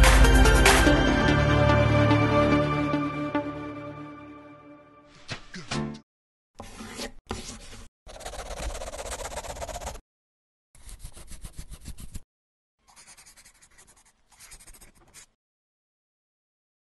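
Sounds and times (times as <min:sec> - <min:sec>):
pen scribbling on paper: 0:06.6 - 0:10.0, 0:10.8 - 0:12.2, 0:12.8 - 0:15.4.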